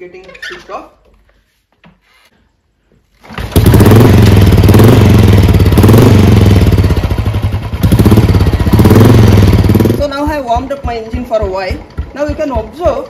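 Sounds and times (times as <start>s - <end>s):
motorcycle engine starting and revving: 3.1s - 13.0s.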